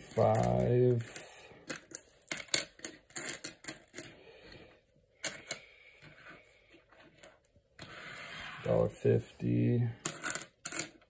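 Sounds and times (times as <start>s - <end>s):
coins clicking on stone countertop: 1.7s - 4.1s, 10.0s - 11.0s.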